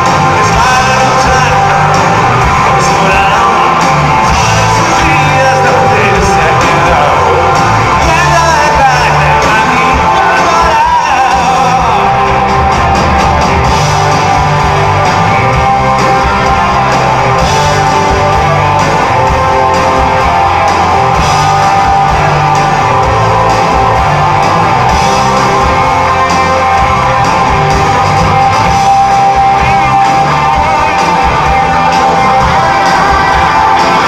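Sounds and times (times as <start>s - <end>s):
man singing: 0.0s - 12.8s
live rock band playing: 0.0s - 34.0s.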